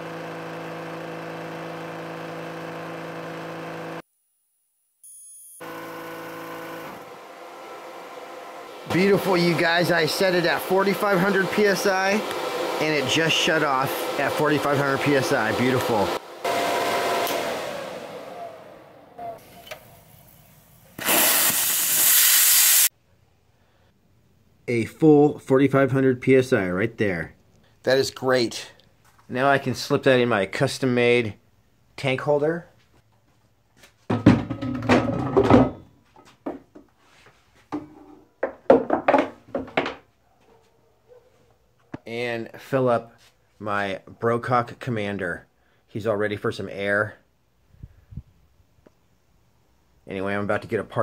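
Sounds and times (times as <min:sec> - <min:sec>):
cooling fan winding down: 0:00.0 - 0:04.0, 0:05.6 - 0:20.4
high-pressure air hissing: 0:19.4 - 0:22.9.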